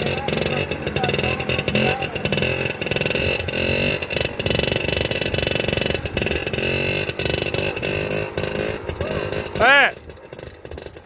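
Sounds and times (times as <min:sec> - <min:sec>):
scooter engine revving: 0:00.0 - 0:11.0.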